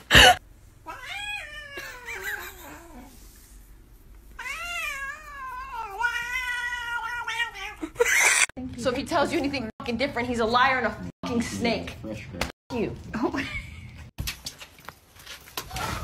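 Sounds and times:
cat yowling: 0.8s - 3.0s, 4.4s - 8.5s.

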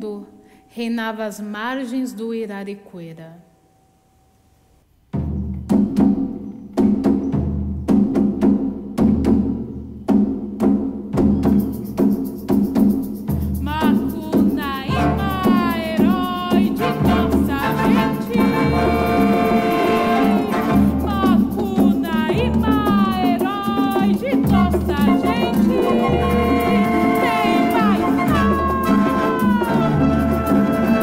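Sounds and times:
struck percussion accents: 5.1s - 31.0s
sliding high-pitched tones: 14.2s - 21.9s, 24.6s - 31.0s.

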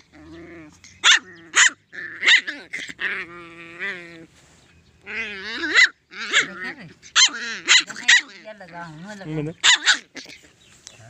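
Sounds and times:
puppy yelping barks: 0.8s - 4.0s, 5.1s - 8.8s, 9.6s - 10.5s.

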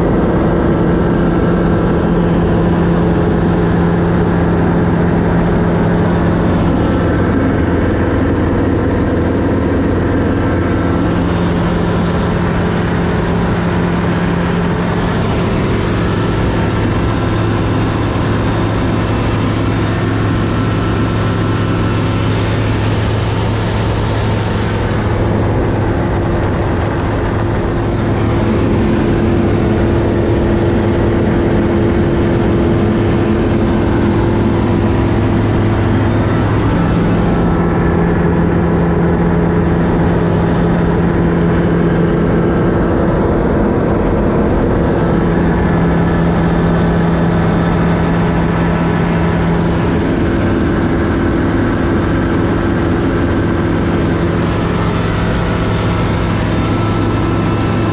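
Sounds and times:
aircraft engine and propeller drone: 0.0s - 57.9s
air noise: 4.6s - 42.5s.

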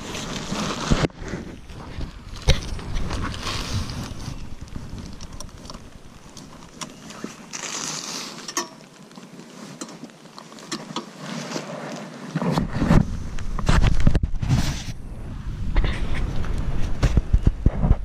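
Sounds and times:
wind on microphone: 0.0s - 6.8s, 12.4s - 18.0s
low rumble: 12.6s - 18.0s.

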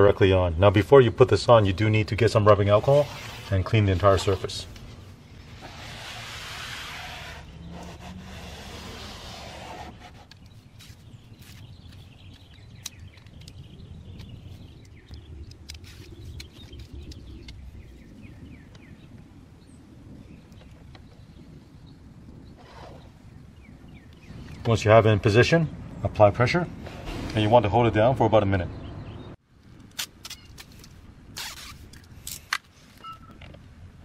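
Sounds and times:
cloth rubbing on plastic: 2.6s - 4.6s, 5.5s - 11.6s.

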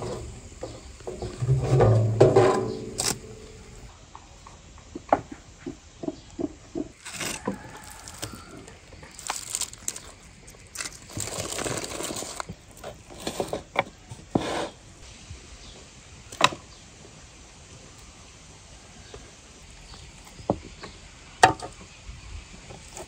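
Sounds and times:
knife and utensils knocking: 0.1s - 3.9s
aluminium foil crinkling: 7.0s - 13.5s.

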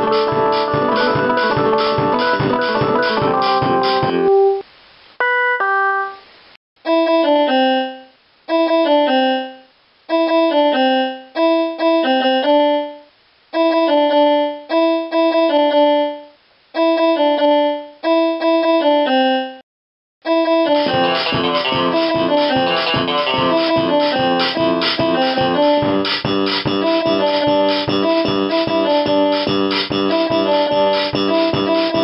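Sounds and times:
electronic keyboard piano phrases: 0.0s - 4.6s, 20.3s - 32.0s.

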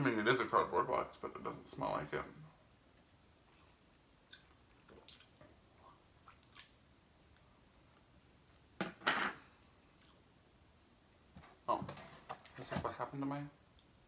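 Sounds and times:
soft chewing: 2.9s - 8.7s, 9.6s - 10.4s.

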